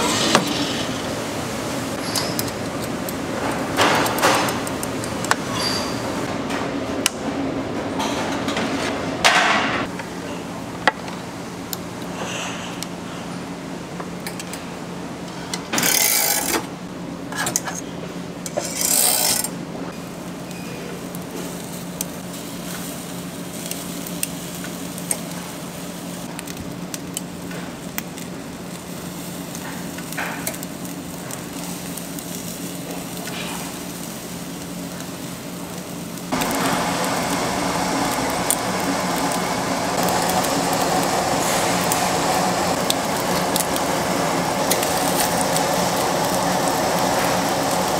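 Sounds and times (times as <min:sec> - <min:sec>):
fish sizzling on a grill: 0:18.6 - 0:47.9.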